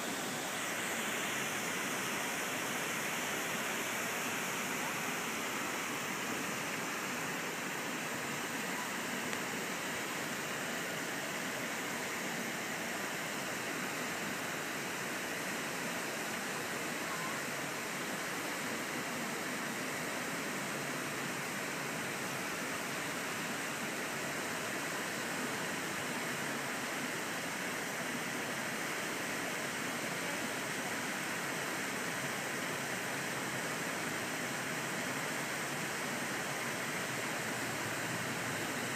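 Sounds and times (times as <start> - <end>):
water rushing over dam spillway: 0.0 - 38.9.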